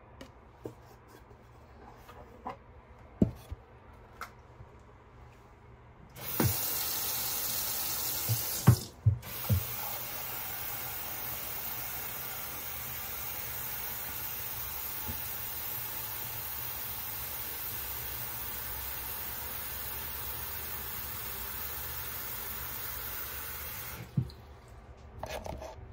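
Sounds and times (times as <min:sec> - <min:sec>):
tap water running into container: 0:06.1 - 0:24.4
container knocking against sink: 0:08.2 - 0:09.8, 0:24.1 - 0:24.4.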